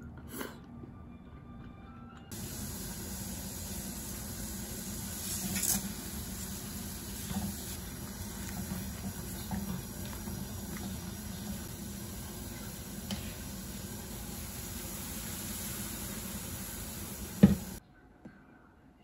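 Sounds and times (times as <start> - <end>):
water boiling: 2.3 - 17.8.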